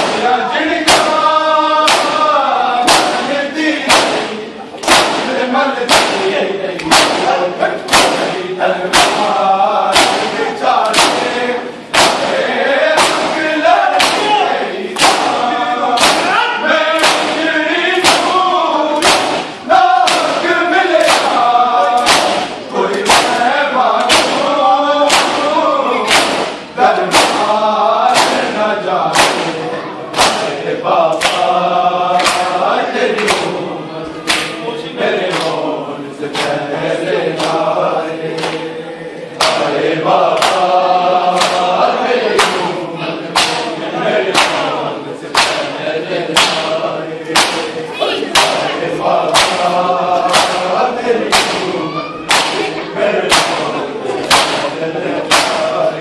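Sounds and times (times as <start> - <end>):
men chanting in unison: 0.0 - 56.0
hands slapping bare chests: 1.8 - 2.2, 2.8 - 3.2, 3.8 - 14.4, 15.0 - 16.3, 17.0 - 17.4, 18.0 - 18.4, 19.0 - 20.4, 21.0 - 23.4, 24.0 - 24.5, 25.1 - 27.5, 28.1 - 28.5, 29.1 - 30.5, 31.1 - 31.5, 32.2 - 32.6, 33.2 - 33.6, 34.2 - 34.6, 35.2 - 35.6, 36.3 - 36.6, 37.4 - 37.6, 38.4 - 38.6, 39.4 - 39.7, 40.3 - 40.7, 41.4 - 41.7, 42.3 - 42.6, 43.4 - 43.7, 44.3 - 44.7, 45.3 - 45.7, 46.4 - 46.7, 47.3 - 47.7, 48.3 - 48.6, 49.3 - 50.7, 51.3 - 51.7, 52.3 - 52.7, 53.3 - 53.6, 54.2 - 55.7.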